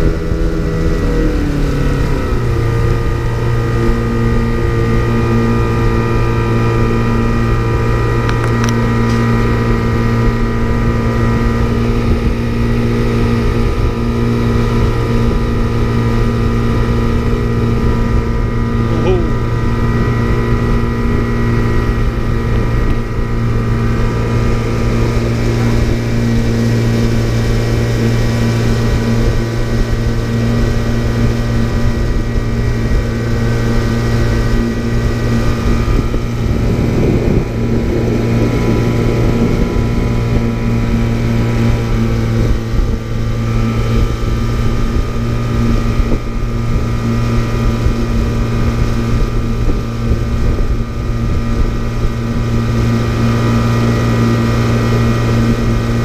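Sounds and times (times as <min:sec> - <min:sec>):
outboard motor droning: 0:00.0 - 0:56.0
wind on microphone: 0:00.0 - 0:56.0.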